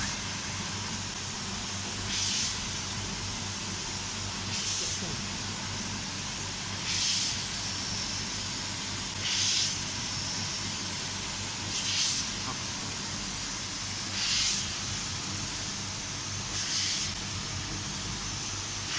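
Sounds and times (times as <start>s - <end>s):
steady machine hum: 0.0s - 18.9s
compressed air hisses: 2.1s - 2.6s, 6.8s - 7.5s, 9.2s - 9.8s, 11.7s - 12.4s, 14.1s - 14.8s, 16.5s - 17.2s.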